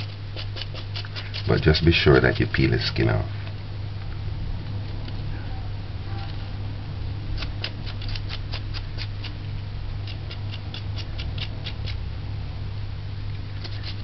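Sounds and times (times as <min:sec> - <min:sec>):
knife scraping ginger skin: 0:00.0 - 0:02.5, 0:07.4 - 0:09.4, 0:10.0 - 0:12.0, 0:13.6 - 0:14.0
steady low hum: 0:00.0 - 0:14.0.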